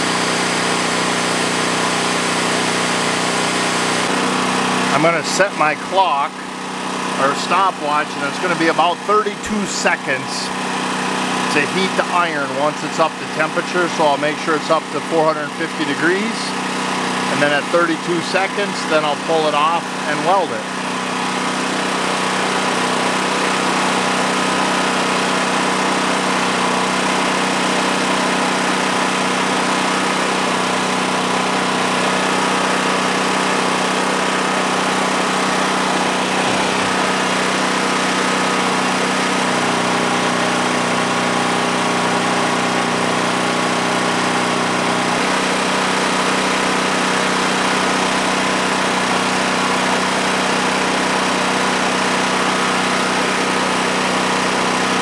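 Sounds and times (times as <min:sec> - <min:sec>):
generator engine running: 0:00.0 - 0:55.0.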